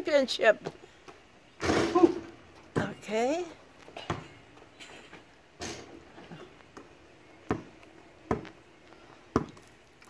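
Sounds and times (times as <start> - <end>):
basketball bouncing on asphalt: 4.0 - 4.3, 6.7 - 8.6, 9.3 - 9.7.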